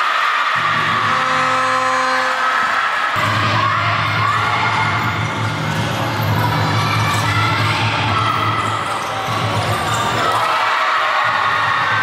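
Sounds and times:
crowd din: 0.0s - 12.0s
basketball bouncing on court: 3.2s - 10.5s.

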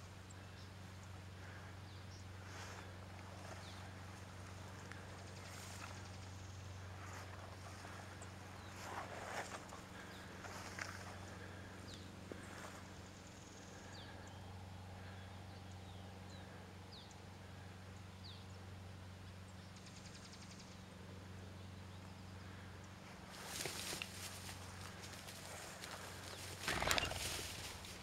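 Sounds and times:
rustles: 0.0s - 14.3s, 22.3s - 28.0s
birds chirping: 0.0s - 18.6s, 21.4s - 28.0s
steady low hum: 0.0s - 28.0s
high rapid bird trill: 25.7s - 28.0s.

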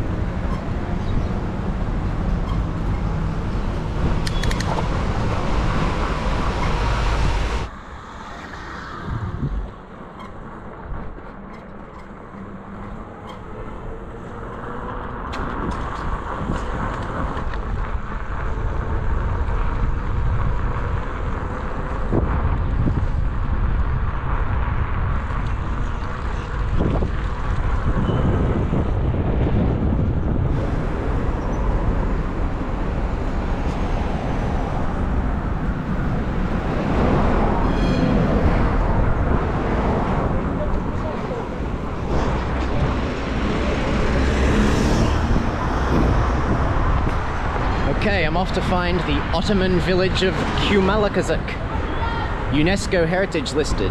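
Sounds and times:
wind on microphone: 0.0s - 10.0s, 15.3s - 48.1s
street traffic: 0.0s - 53.9s.

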